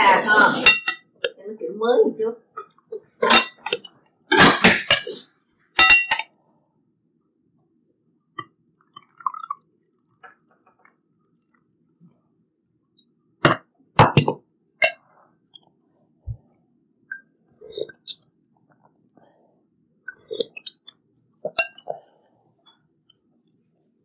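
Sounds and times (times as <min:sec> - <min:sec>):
spoon clinking on ceramic bowls: 0:00.6 - 0:01.4, 0:03.2 - 0:03.9, 0:05.8 - 0:06.3, 0:21.5 - 0:22.0.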